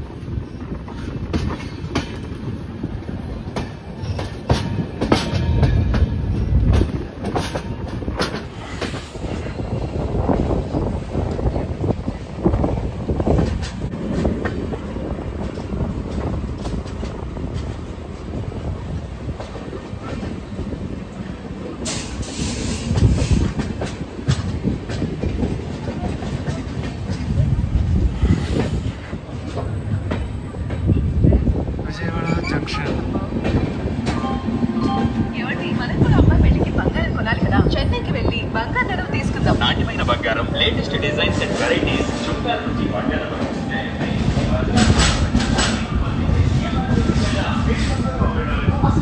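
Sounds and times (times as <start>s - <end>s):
train coach rumbling on track: 0.0s - 49.0s
wheels clacking over rail joints: 0.4s - 9.5s.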